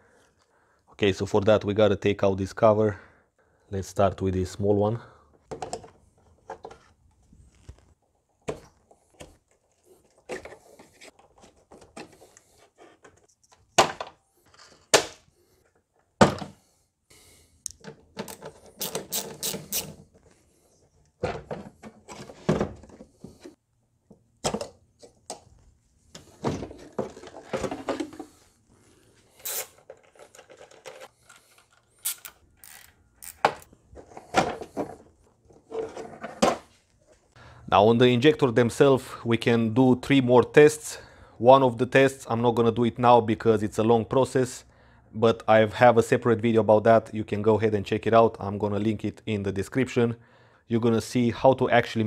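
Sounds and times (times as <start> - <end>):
plastic parts clicking and rattling: 17.7 - 20.3, 26.2 - 28.3, 29.4 - 36.6.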